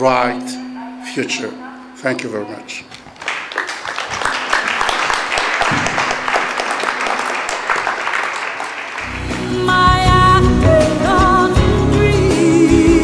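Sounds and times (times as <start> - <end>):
audience applauding: 3.1 - 9.2.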